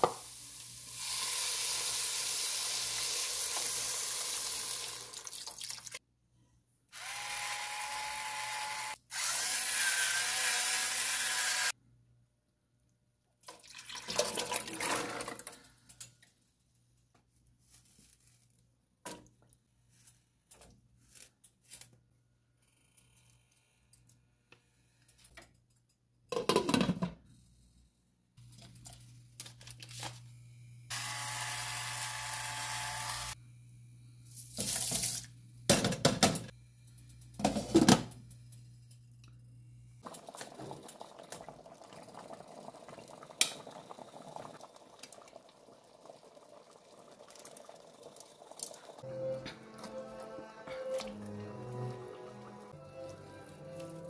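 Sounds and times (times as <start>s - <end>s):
simmering pot hiss: 0.0s - 5.9s
kitchen tap running: 0.0s - 6.0s
water sloshing and pouring: 5.1s - 6.0s, 13.4s - 15.7s.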